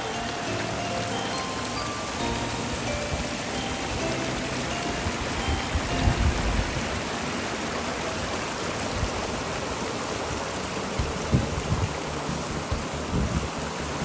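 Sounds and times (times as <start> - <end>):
water hissing: 0.0 - 14.0.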